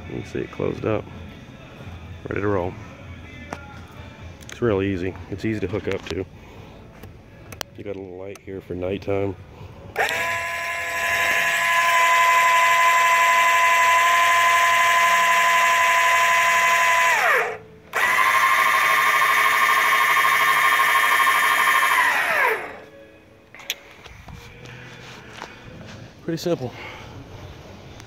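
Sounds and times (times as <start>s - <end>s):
electric jack motor whining: 9.9s - 22.9s.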